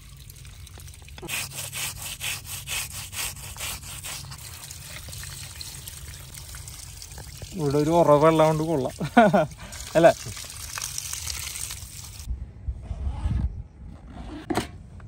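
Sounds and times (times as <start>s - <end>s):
hands scrubbing fish: 0.8s - 12.3s
water running from tap: 3.7s - 12.3s.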